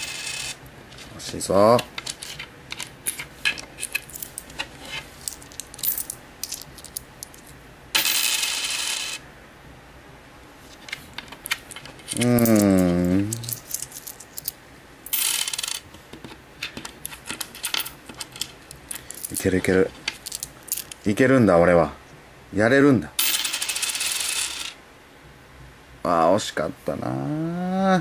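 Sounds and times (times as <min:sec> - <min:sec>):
coins clattering rattle: 0:00.0 - 0:00.6, 0:02.0 - 0:09.2, 0:10.8 - 0:15.9, 0:16.6 - 0:21.0, 0:23.2 - 0:24.8
coins clicking and clinking: 0:00.0 - 0:00.6, 0:01.8 - 0:09.2, 0:10.8 - 0:15.9, 0:16.6 - 0:21.0, 0:23.2 - 0:24.8
man wordless vocal sound: 0:12.2 - 0:13.5, 0:27.0 - 0:28.0.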